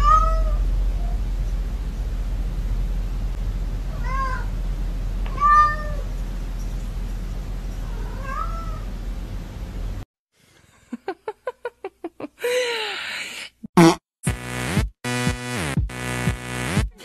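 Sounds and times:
cat meowing: 0:00.0 - 0:01.2, 0:03.9 - 0:04.5, 0:05.3 - 0:06.1, 0:07.8 - 0:08.9
low hum: 0:00.0 - 0:10.0.

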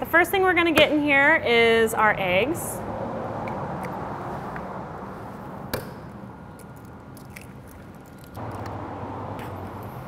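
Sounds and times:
egg shell cracking: 0:06.6 - 0:08.7.

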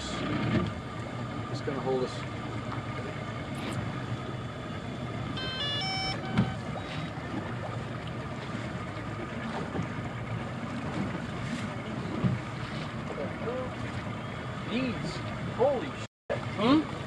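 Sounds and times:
boat engine idling: 0:00.0 - 0:17.0
water slapping hull: 0:00.0 - 0:17.0
electronic chime: 0:05.4 - 0:06.9
thump: 0:06.3 - 0:06.6.

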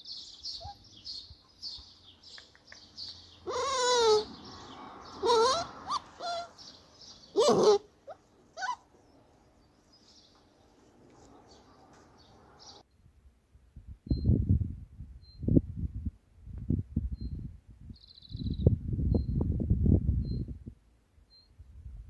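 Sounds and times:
small bird chirping: 0:00.0 - 0:13.1, 0:17.1 - 0:19.4
animal calling with wavering pitch: 0:03.4 - 0:06.6.

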